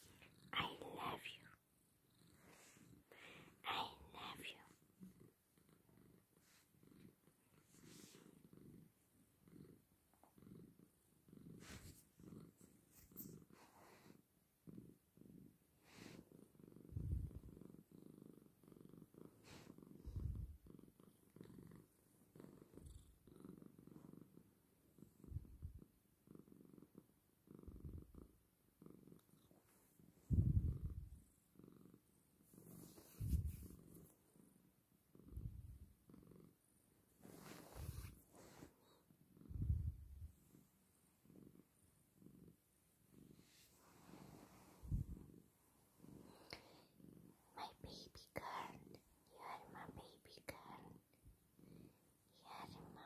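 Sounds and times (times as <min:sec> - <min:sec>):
cat purring: 0:00.0 - 0:53.0.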